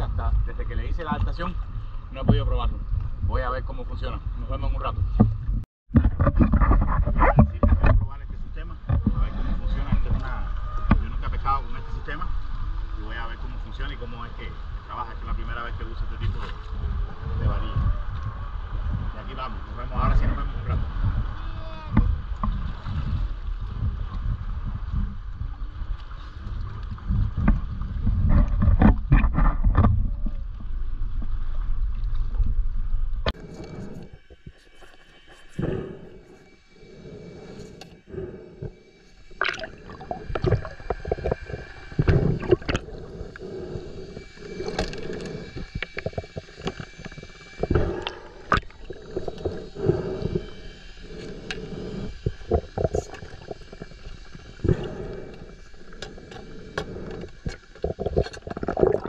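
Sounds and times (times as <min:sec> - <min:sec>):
underwater knocks and clicks: 0:04.9 - 0:11.3, 0:21.9 - 0:25.5, 0:26.5 - 0:34.6, 0:39.4 - 0:59.0
water sloshing and splashing: 0:04.9 - 0:36.5, 0:38.6 - 0:59.0.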